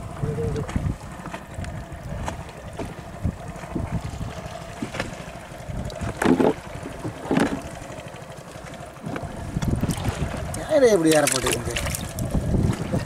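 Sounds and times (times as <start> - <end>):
boat engine hum: 0.0 - 13.0
water sloshing in plastic tub: 9.0 - 13.0.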